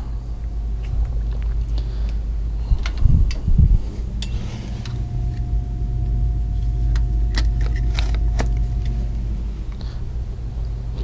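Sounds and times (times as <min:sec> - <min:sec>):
low rumble: 0:00.0 - 0:11.0
faint steady tone: 0:04.0 - 0:11.0.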